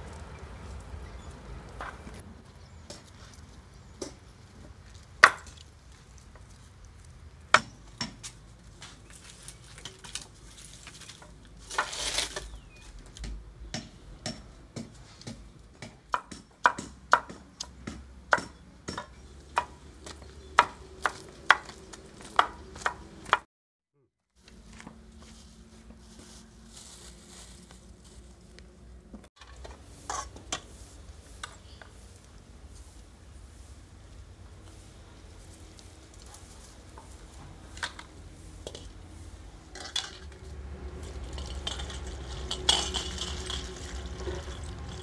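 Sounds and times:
short rustle: 25.2 - 28.8.

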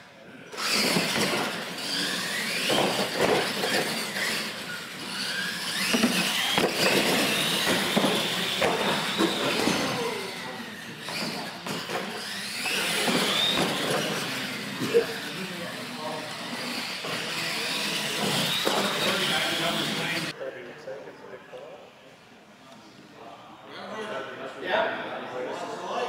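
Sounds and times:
toy truck motors whining: 0.5 - 20.3.

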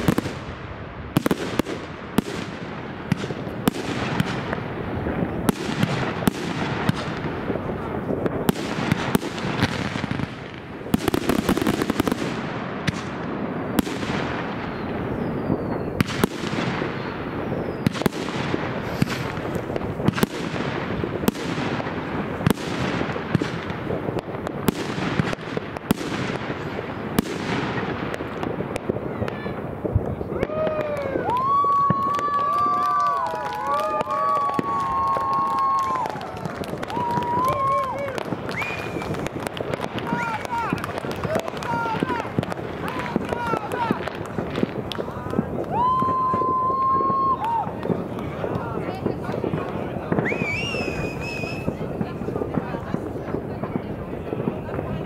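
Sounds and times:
distant fireworks bangs: 0.0 - 55.0
rockets and firecrackers cracking: 0.0 - 55.0
rocket whistles: 14.6 - 16.2, 16.9 - 18.1, 38.5 - 39.2, 50.2 - 51.8.

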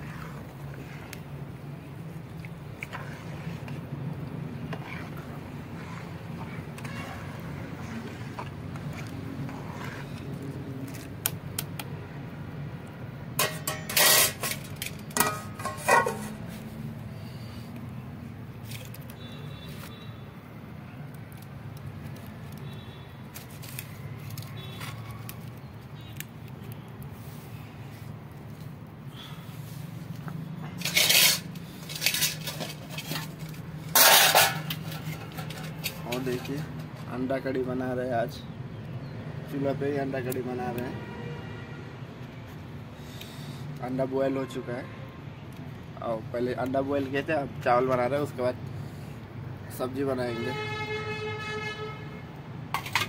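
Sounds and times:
metal utensils clinking: 13.4 - 16.4, 30.8 - 37.0, 52.8 - 53.0.

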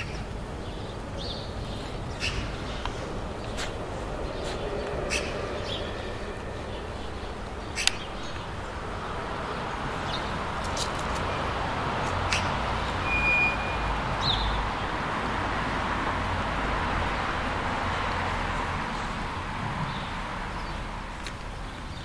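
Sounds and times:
vehicle passing: 0.0 - 21.8
road traffic noise: 0.0 - 22.0
short high chirp: 13.0 - 14.3.

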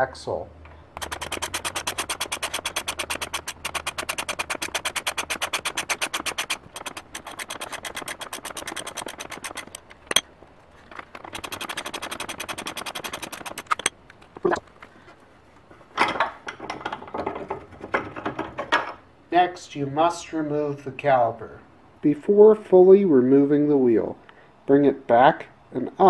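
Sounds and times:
air ratchet rattling: 1.0 - 13.9.

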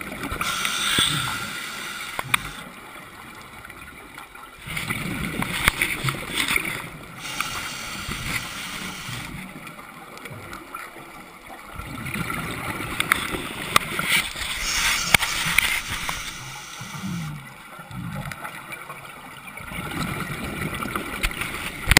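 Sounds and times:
regulator hissing inhalation: 0.4 - 2.6, 7.2 - 9.4, 14.5 - 17.4
sharp clicks: 0.4 - 2.6.

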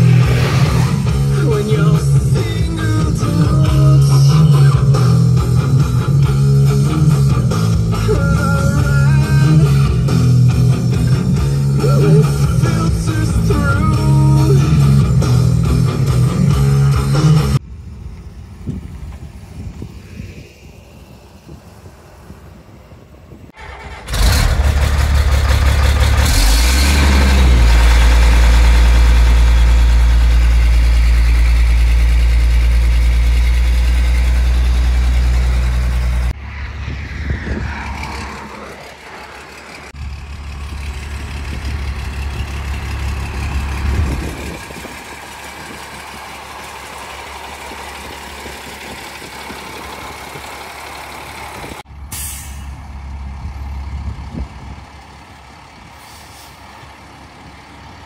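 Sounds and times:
quieter machinery running: 0.0 - 51.8
diesel engine drone: 0.0 - 58.0.

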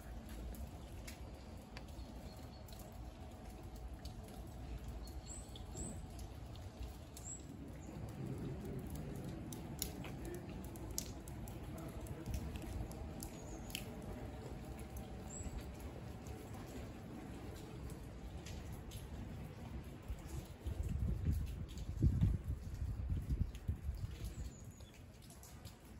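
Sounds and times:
raindrops ticking and dripping: 0.0 - 25.9.

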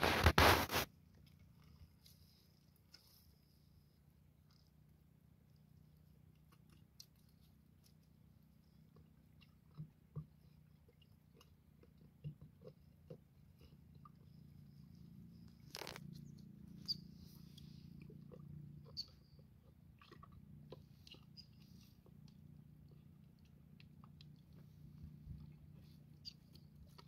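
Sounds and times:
rustle: 0.0 - 0.9.

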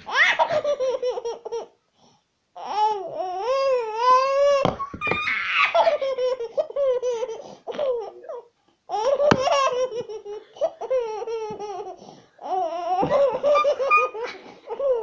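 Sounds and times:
baby laughing: 0.0 - 1.7, 4.7 - 15.0.

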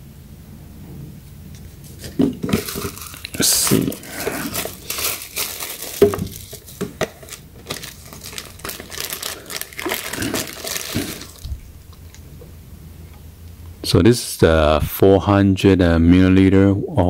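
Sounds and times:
paper and plastic crinkling: 1.6 - 12.2.

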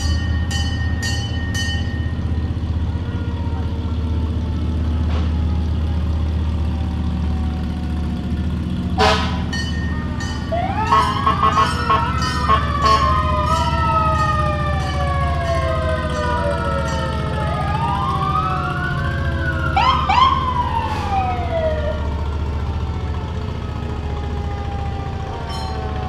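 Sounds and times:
low engine rumble: 0.0 - 26.0
sirens wailing: 1.8 - 26.0
siren yelping whoops: 9.9 - 22.2.

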